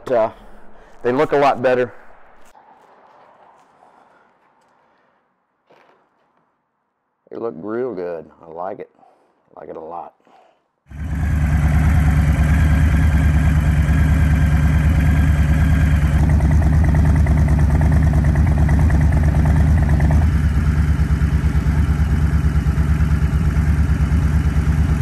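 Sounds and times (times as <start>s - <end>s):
motorcycle engine idling: 10.9s - 25.0s.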